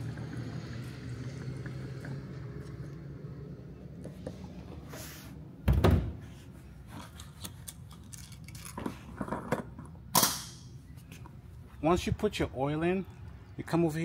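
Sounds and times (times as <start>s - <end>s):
handling clicks and rattles: 6.9s - 10.3s.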